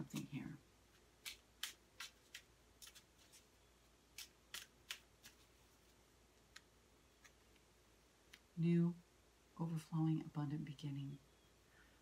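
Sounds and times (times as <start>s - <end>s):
cards being shuffled: 0.0s - 3.5s, 4.1s - 7.7s.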